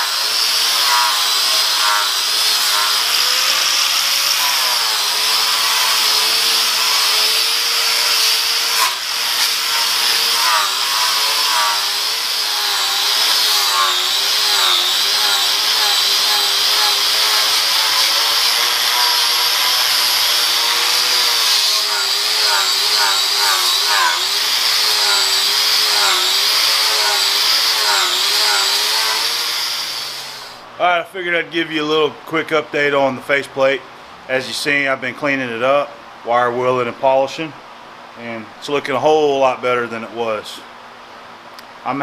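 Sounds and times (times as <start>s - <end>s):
angle grinder on iron: 0.0s - 30.6s.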